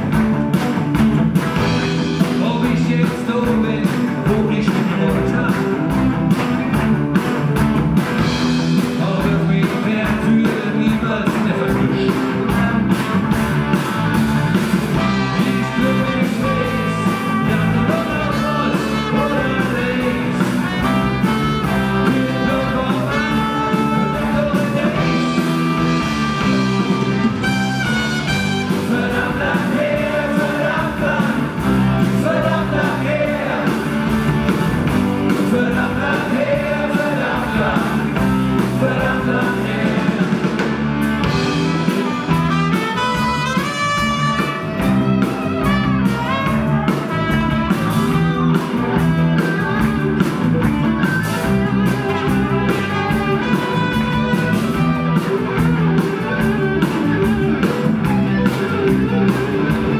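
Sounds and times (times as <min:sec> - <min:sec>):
live rock band playing: 0:00.0 - 0:59.9
trumpet solo: 0:25.8 - 0:28.8, 0:41.8 - 0:48.5, 0:52.2 - 0:55.0.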